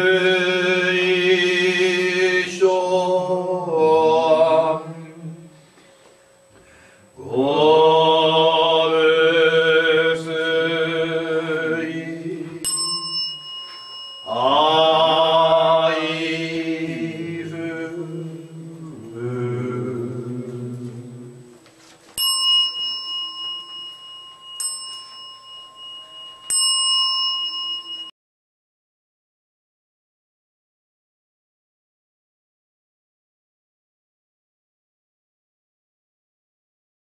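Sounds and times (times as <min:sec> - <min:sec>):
man chanting: 0:00.0 - 0:05.6, 0:07.2 - 0:12.7, 0:14.3 - 0:21.5
small bowl bell ringing: 0:12.6 - 0:15.4, 0:22.2 - 0:28.2.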